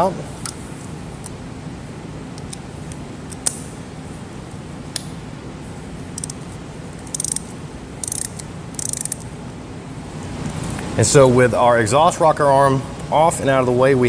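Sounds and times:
hand ratchet clicking: 7.0 - 9.2.

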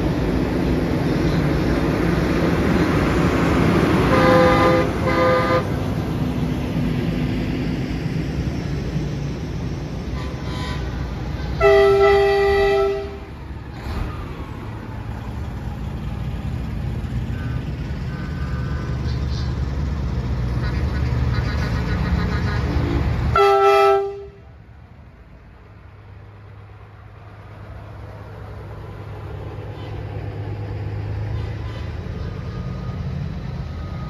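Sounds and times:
truck engines rumbling: 0.0 - 34.0
truck air horn blasts: 4.0 - 5.8, 10.1 - 13.3, 23.3 - 24.5, 31.3 - 32.0.

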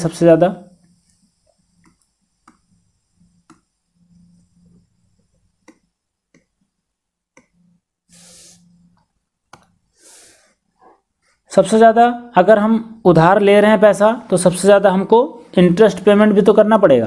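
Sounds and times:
computer mouse clicks: 0.8 - 2.7, 3.3 - 4.3, 5.6 - 6.6, 7.3 - 7.6
short hiss: 8.1 - 8.8.

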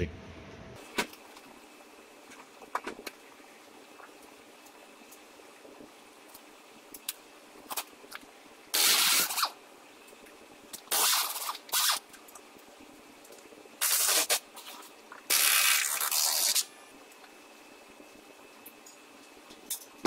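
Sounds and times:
pneumatic impact wrench bursts: 8.8 - 9.5, 10.9 - 12.0.

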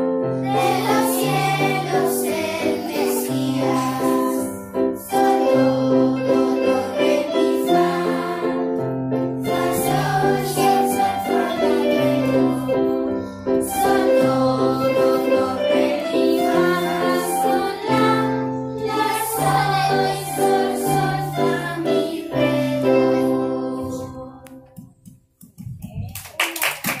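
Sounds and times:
people clapping: 24.7 - 27.0.

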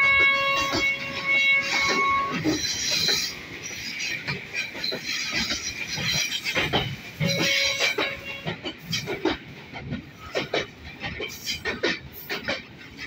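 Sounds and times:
train wheels squealing: 0.0 - 9.1
wheels clattering over rail joints: 0.2 - 13.0.

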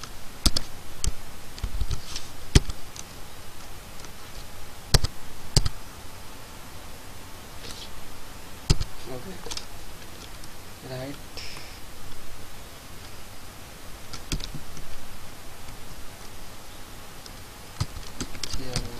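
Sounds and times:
keyboard keystroke clicks: 0.0 - 2.0, 4.9 - 5.8, 8.7 - 8.9.

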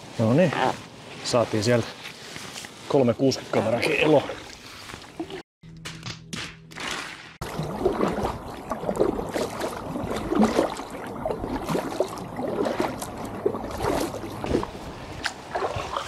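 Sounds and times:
water gurgling around paddle: 7.4 - 16.0.

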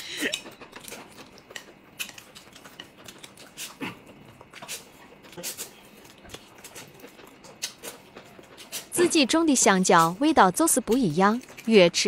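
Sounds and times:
noodles being slurped and chewed: 0.0 - 12.0.

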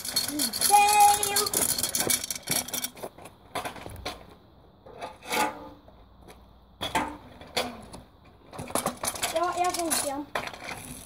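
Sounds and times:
kick scooter clacking: 0.0 - 4.3, 6.8 - 11.0
scooter scraping on asphalt: 0.0 - 5.8, 8.5 - 11.0.

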